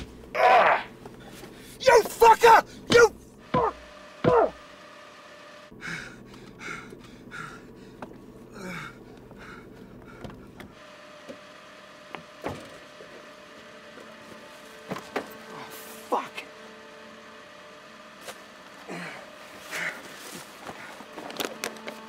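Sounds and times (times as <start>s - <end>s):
low hum inside car: 0.0s - 11.4s
ragged gasping breaths: 5.8s - 10.8s.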